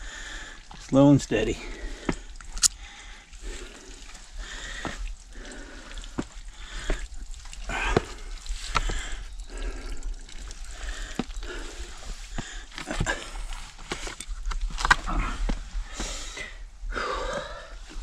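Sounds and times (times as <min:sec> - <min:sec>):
sharp taps on rock: 0:07.9 - 0:09.0.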